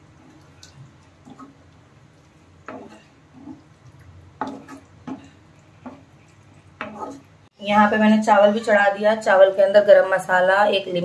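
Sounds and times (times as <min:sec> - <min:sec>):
spoon scraping cooking pot: 0:01.2 - 0:01.6, 0:02.6 - 0:03.8, 0:04.4 - 0:07.4.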